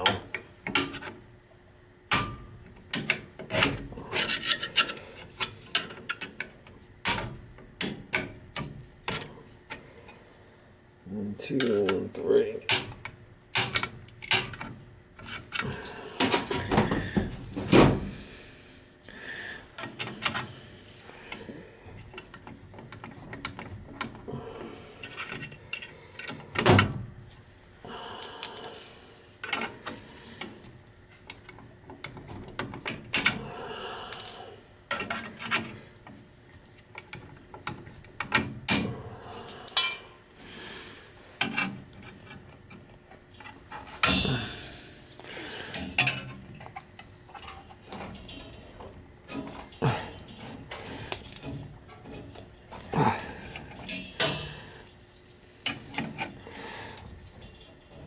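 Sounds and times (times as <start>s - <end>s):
metallic clicks and clinks: 39.7s - 40.0s.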